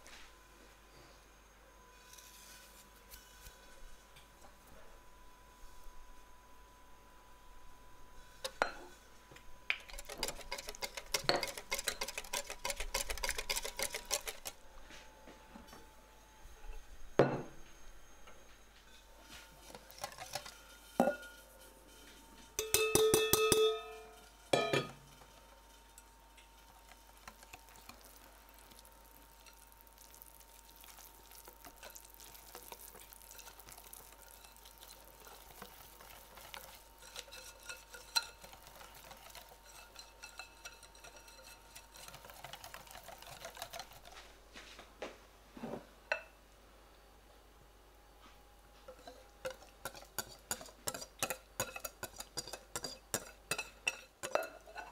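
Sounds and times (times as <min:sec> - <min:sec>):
kitchen utensils scraping and tapping: 0:08.4 - 0:09.0, 0:09.7 - 0:14.6, 0:18.8 - 0:28.3, 0:30.8 - 0:44.3, 0:48.8 - 0:54.9
whisk stirring melted chocolate: 0:09.7 - 0:14.6, 0:19.5 - 0:21.1, 0:26.5 - 0:44.3, 0:48.9 - 0:54.9
whisk clinking against glass bowl: 0:09.8 - 0:14.5, 0:22.6 - 0:24.9, 0:31.7 - 0:44.1, 0:48.9 - 0:54.9.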